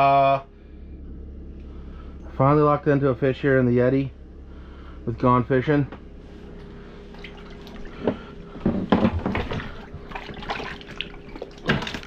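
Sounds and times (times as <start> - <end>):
steady hum: 0.0 - 12.0
water splashing and dripping: 7.1 - 7.9, 9.2 - 12.0.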